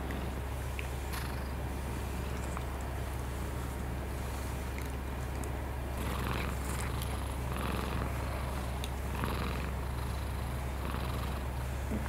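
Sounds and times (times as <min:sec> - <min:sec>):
cat purring: 0:01.1 - 0:01.6, 0:06.0 - 0:12.0.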